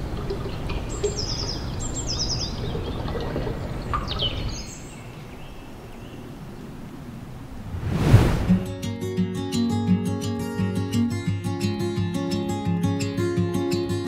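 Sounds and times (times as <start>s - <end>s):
small birds chirping: 0.0s - 6.8s
low rushing background noise: 4.6s - 8.8s.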